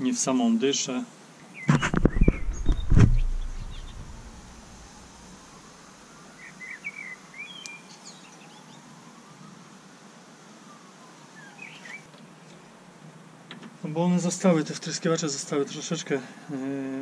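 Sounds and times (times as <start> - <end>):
low background hiss: 0.0 - 17.0
birds chirping: 1.5 - 5.4, 6.4 - 8.8
sharp knocks: 1.7 - 4.4
heavy thud: 1.7 - 4.9.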